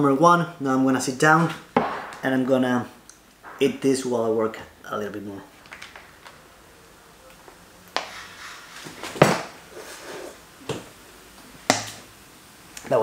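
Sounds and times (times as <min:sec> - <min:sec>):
loud knock on desk: 0:01.8 - 0:02.2.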